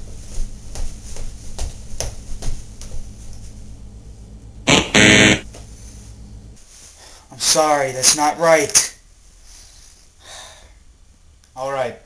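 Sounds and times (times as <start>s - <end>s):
game show buzzer: 4.7s - 5.4s.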